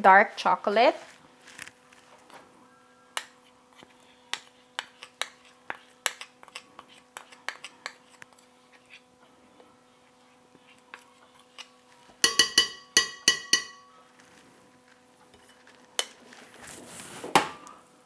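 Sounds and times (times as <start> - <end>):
metal spoon clinking against glass bowl: 12.2 - 13.9.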